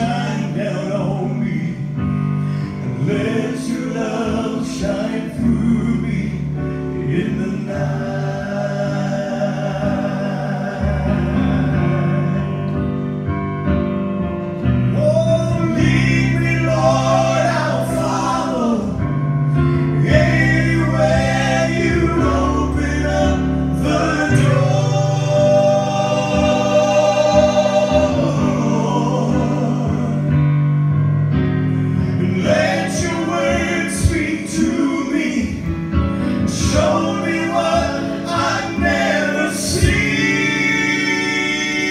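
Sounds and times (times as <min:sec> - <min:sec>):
male trio singing gospel harmony: 0:00.0 - 0:13.4, 0:14.9 - 0:31.0, 0:31.8 - 0:41.9.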